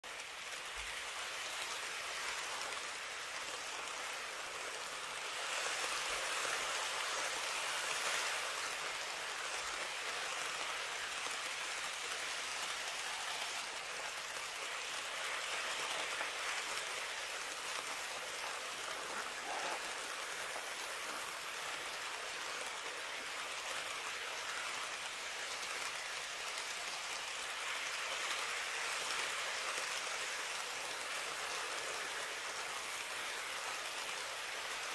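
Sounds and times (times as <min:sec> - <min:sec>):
model trains running on track: 0:00.0 - 0:34.9.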